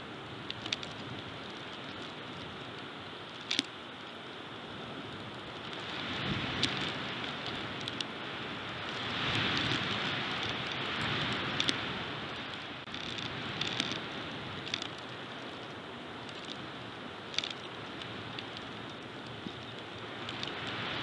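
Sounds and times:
sharp clicks and crackles: 0:00.4 - 0:04.2, 0:05.2 - 0:21.0
strong wind gusting: 0:04.6 - 0:21.0.

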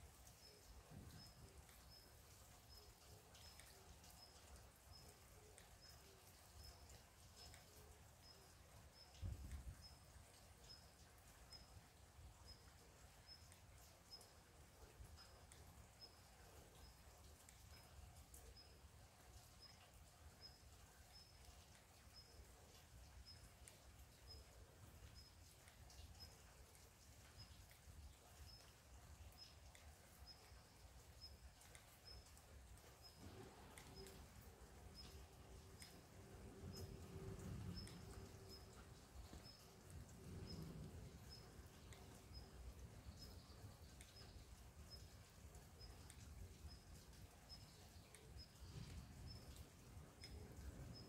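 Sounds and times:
rain drips: 0:00.0 - 0:51.0.

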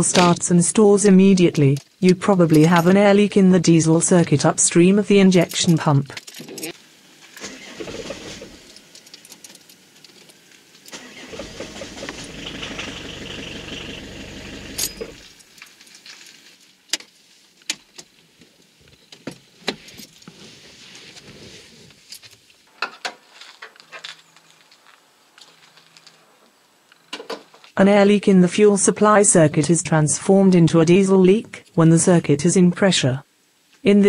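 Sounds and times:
diesel car engine starting and stalling: 0:07.4 - 0:08.8, 0:10.9 - 0:15.3.

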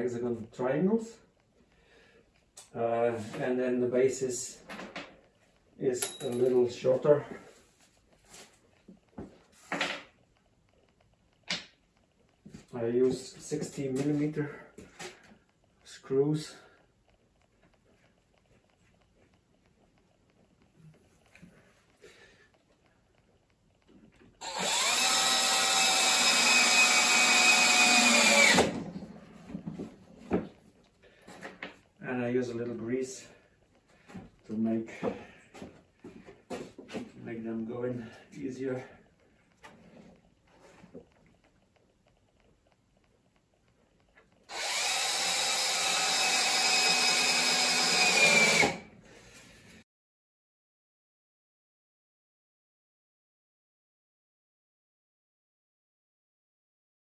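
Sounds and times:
cordless drill whining: 0:24.4 - 0:28.8, 0:44.5 - 0:48.9.

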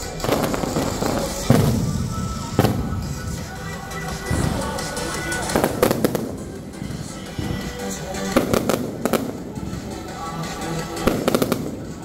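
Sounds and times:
fireworks bangs and crackling: 0:00.0 - 0:12.0.

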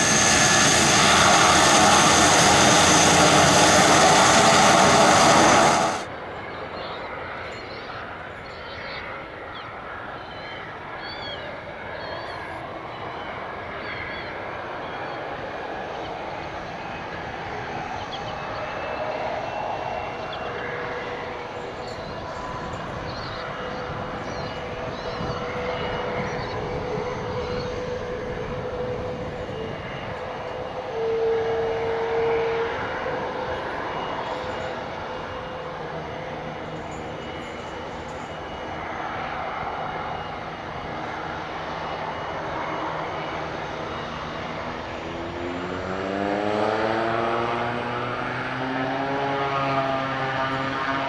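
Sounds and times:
turboprop aircraft engines running: 0:00.0 - 0:51.0.

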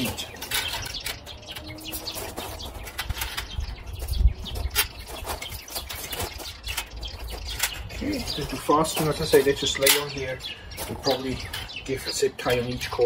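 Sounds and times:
wire shelves clicking and rattling: 0:00.0 - 0:11.8
wind rumble on microphone: 0:00.5 - 0:09.4.

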